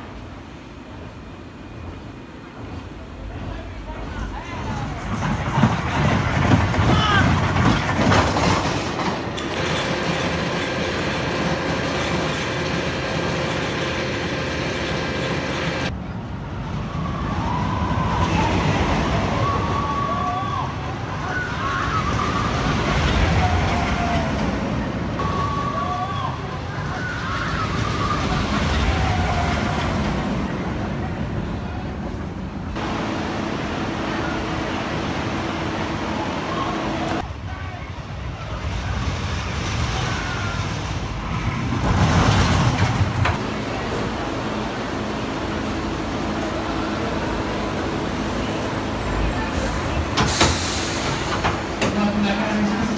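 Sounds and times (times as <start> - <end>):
roller coaster rumbling on track: 0.0 - 52.9
faint riders' voices: 3.0 - 7.9.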